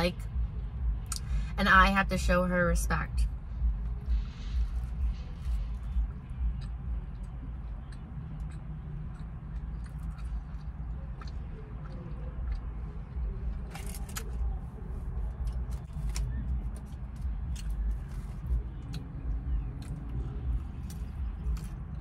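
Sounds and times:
low rumble in car cabin: 0:00.0 - 0:22.0
mouth sounds of eating: 0:05.4 - 0:15.8.

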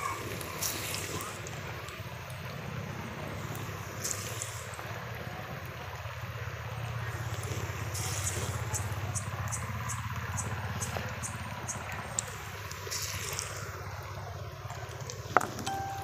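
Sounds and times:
oil crackles: 0:00.0 - 0:06.2, 0:10.9 - 0:15.6.

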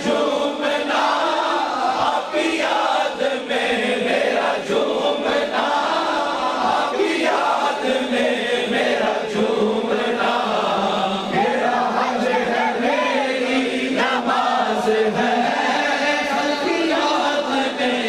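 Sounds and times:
men chanting in group: 0:00.0 - 0:18.0
lead singer on microphone: 0:04.3 - 0:18.0.

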